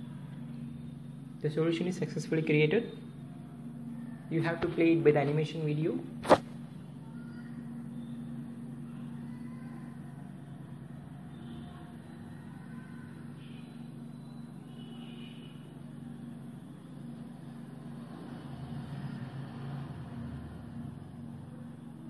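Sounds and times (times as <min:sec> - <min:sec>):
steady low hum: 0:00.0 - 0:14.8.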